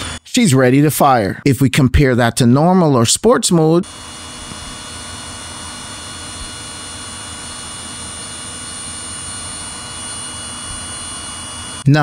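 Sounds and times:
drone propellers whirring: 3.8s - 11.9s.

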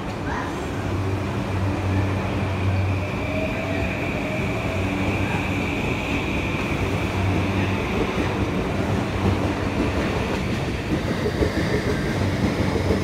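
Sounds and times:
train wheels rumbling: 0.0s - 13.0s.

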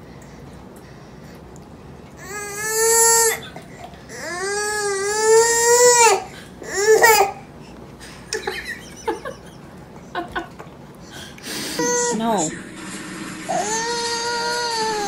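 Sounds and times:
toddler crying: 4.1s - 7.4s, 11.8s - 12.3s, 13.5s - 15.0s.

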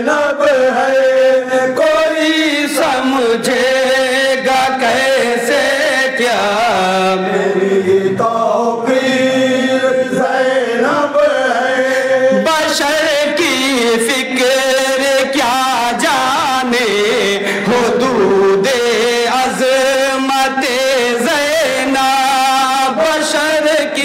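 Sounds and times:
men chanting in chorus: 0.0s - 24.0s.

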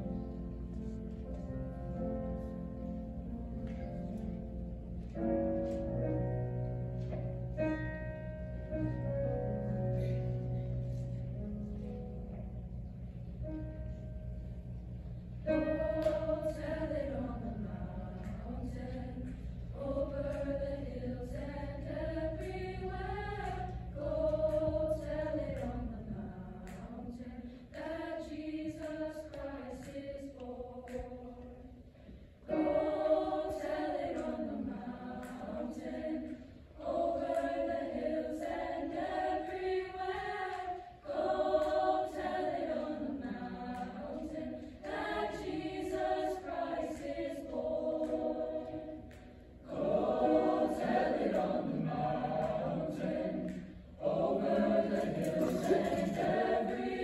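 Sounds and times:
choir singing: 15.4s - 31.8s, 32.4s - 57.0s.

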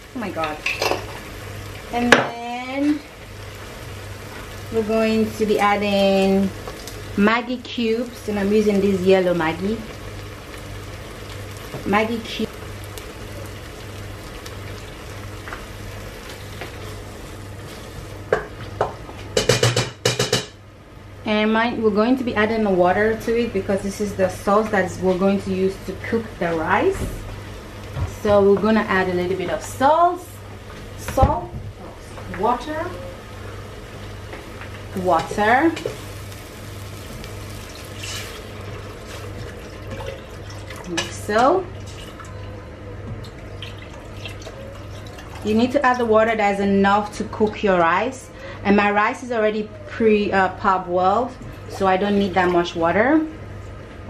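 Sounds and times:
tomato sauce sizzling in a pot: 0.0s - 19.2s, 22.6s - 42.2s.

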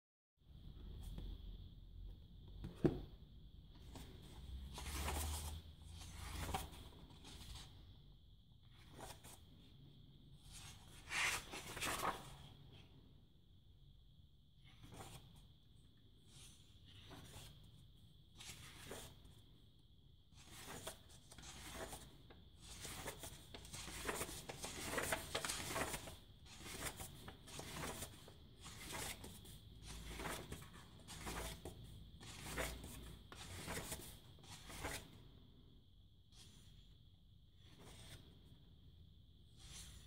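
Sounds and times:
book pages turning: 3.9s - 7.7s, 8.7s - 9.5s, 10.5s - 12.5s, 16.8s - 17.6s, 20.4s - 35.1s.

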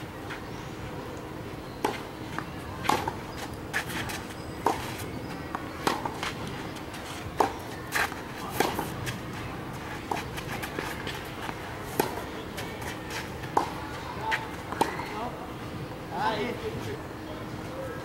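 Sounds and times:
tennis balls struck by rackets: 1.8s - 15.1s.

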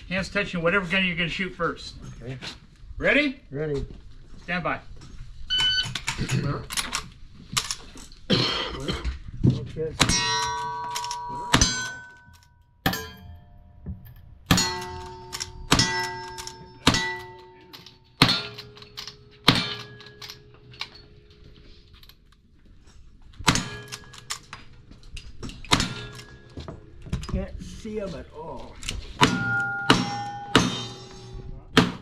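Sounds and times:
steel plate ringing: 10.0s - 13.8s, 14.5s - 20.5s, 29.2s - 31.6s
rifle shots: 19.4s - 20.2s.

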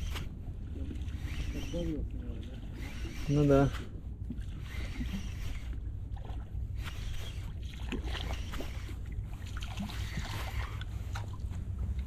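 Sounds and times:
fishing reel ticking: 0.0s - 0.3s, 1.0s - 3.9s, 4.6s - 5.9s, 6.8s - 10.9s
wind and water rumble: 0.0s - 12.0s.

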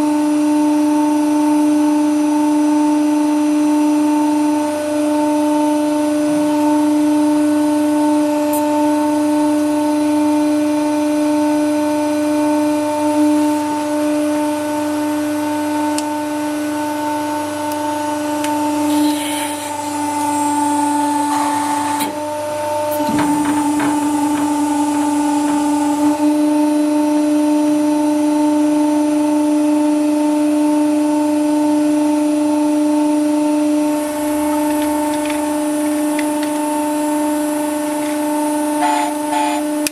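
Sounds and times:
hydraulic pump humming: 7.9s - 10.3s, 13.0s - 27.6s, 33.2s - 39.9s.

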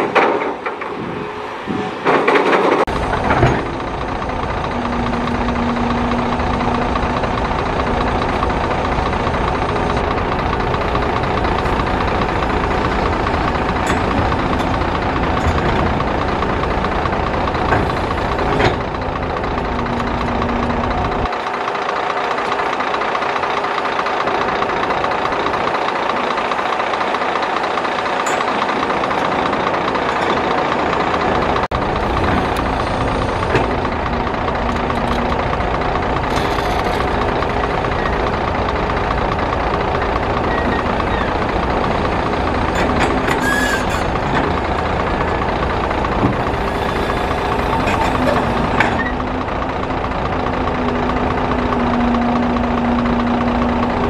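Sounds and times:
heavy diesel engines running: 0.0s - 54.0s
excavator loading dirt into truck: 27.8s - 50.6s.

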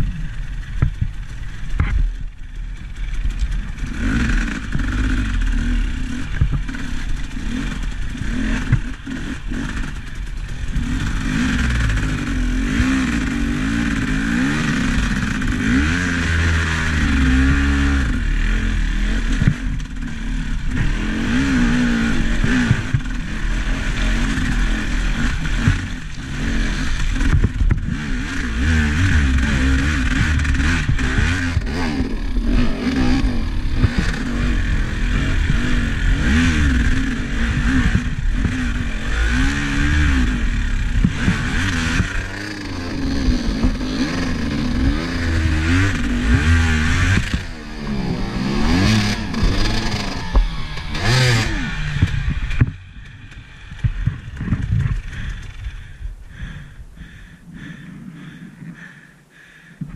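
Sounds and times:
vehicle engine revving: 3.0s - 59.7s
rattling and clatter: 23.9s - 28.0s, 47.0s - 55.8s.

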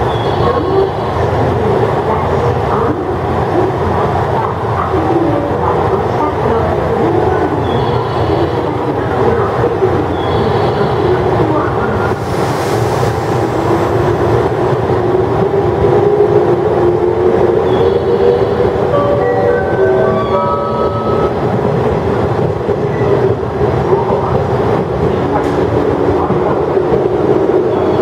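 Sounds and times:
wheels rumbling on rails: 0.0s - 28.0s.

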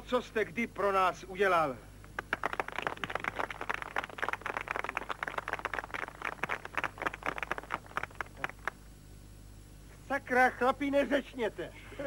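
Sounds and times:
small group applauding: 2.1s - 8.9s.

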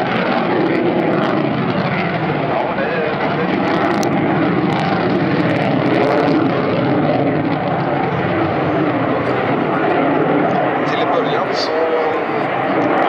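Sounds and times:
fighter jet engine roar: 0.0s - 13.0s.

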